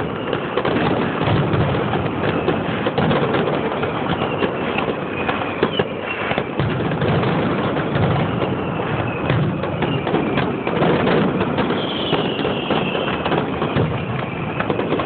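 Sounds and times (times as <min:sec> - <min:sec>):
faint firework whistle: 0:00.0 - 0:15.0
fireworks bangs and crackles: 0:00.0 - 0:15.0.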